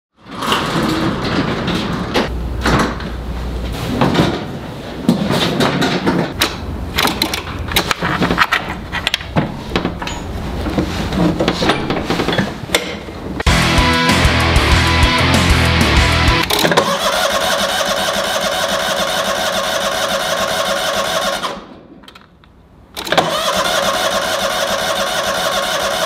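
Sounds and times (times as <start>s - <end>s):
steady background noise: 0.2s - 13.6s
metallic clunks and rattles: 5.3s - 13.5s.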